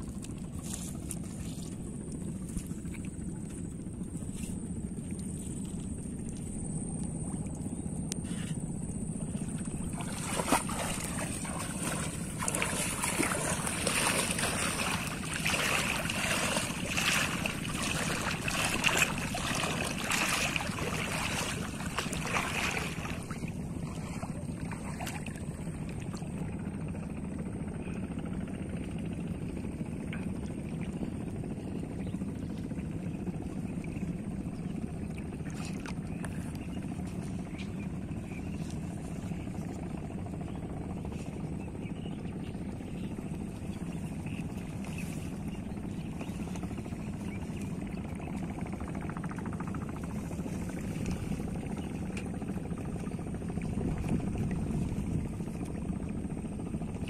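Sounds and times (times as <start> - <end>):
low outdoor rumble: 0.0 - 57.0
water splashing from wading: 9.2 - 26.6, 35.0 - 36.9.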